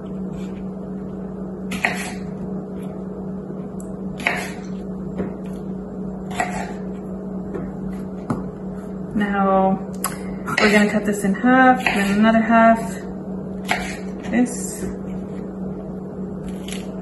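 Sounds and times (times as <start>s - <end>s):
low hum: 0.0s - 17.0s
knife cutting on cutting board: 1.7s - 2.2s, 4.2s - 4.6s, 6.3s - 6.8s, 13.6s - 14.1s, 16.4s - 16.9s.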